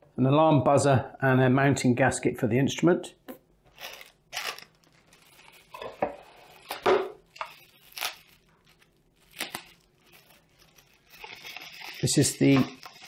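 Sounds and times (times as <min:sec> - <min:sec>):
packaging rustling and crinkling: 0:03.7 - 0:13.0.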